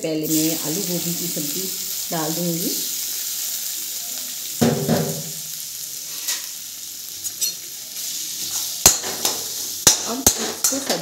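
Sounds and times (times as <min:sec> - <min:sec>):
vegetables sizzling in oil: 0:00.0 - 0:11.0
knocks on pan: 0:04.6 - 0:05.4.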